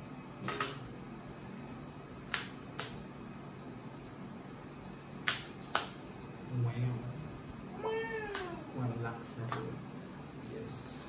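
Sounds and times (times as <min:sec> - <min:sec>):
trading cards clicking and snapping: 0:02.2 - 0:03.0, 0:05.2 - 0:06.0, 0:08.2 - 0:08.6.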